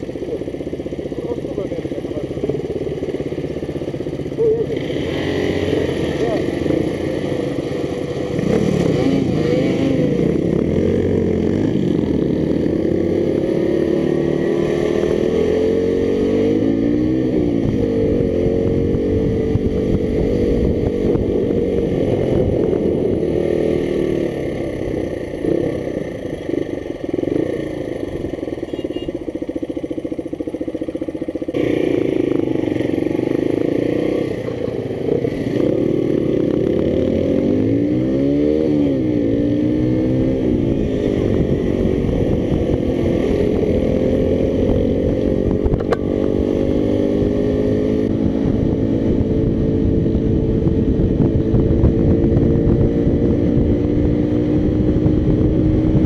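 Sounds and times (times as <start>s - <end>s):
motorcycle engine running: 0.0s - 56.0s
wind rush on microphone: 17.2s - 25.5s, 39.8s - 56.0s.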